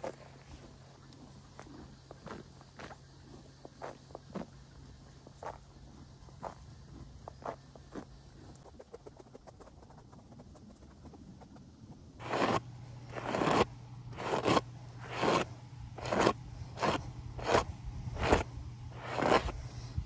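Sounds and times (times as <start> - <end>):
hairbrush strokes through mane: 12.2 - 19.8.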